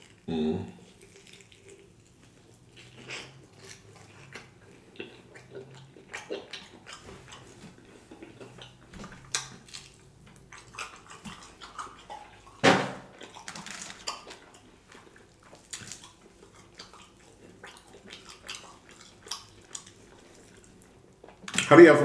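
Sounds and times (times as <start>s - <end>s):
wet chewing and lip-smacking: 0.0s - 21.7s
loud mouth sound: 0.2s - 0.9s.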